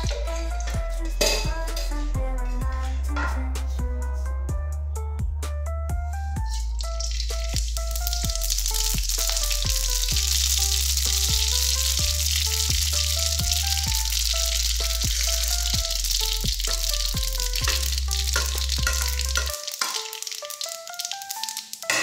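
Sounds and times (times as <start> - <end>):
background music with bass: 0.0 - 19.7
seeds sizzling and popping in oil: 6.4 - 22.0.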